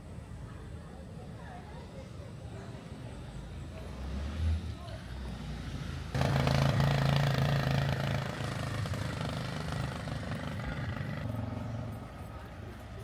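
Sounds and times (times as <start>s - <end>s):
vehicle engine running: 3.7s - 13.0s.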